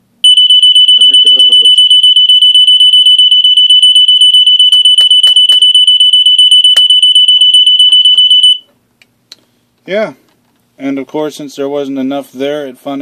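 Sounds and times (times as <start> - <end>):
smoke detector alarm pulsing: 0.2 - 8.7.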